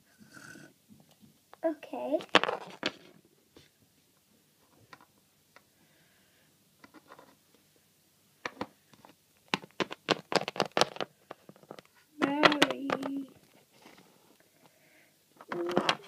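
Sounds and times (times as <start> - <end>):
plastic figurines tapping and clicking: 8.5 - 13.4, 15.4 - 16.0.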